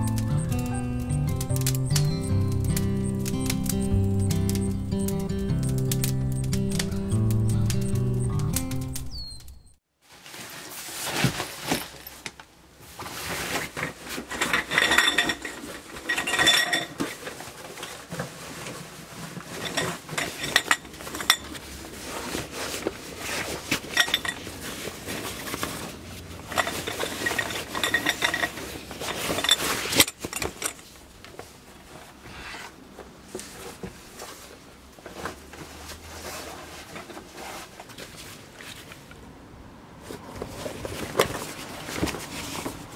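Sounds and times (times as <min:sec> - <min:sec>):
metal items clinking: 0:14.1 - 0:17.9, 0:19.4 - 0:21.6, 0:23.2 - 0:30.9.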